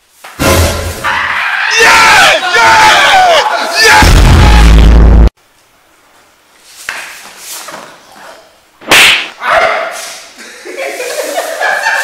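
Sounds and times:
sharp crack: 0:08.8 - 0:09.4.

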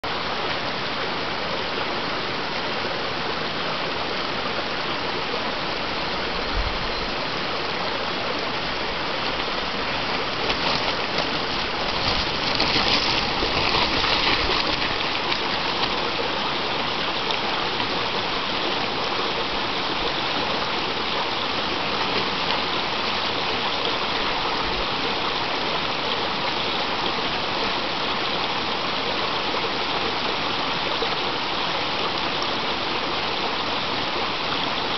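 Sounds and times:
stream rushing over rocks: 0:00.0 - 0:34.9
bike tyres crackling over stones: 0:10.2 - 0:15.0.

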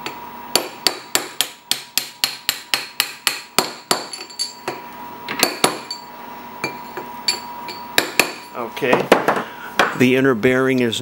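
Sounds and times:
hammer tapping steel tube: 0:00.0 - 0:04.8, 0:06.6 - 0:08.5.

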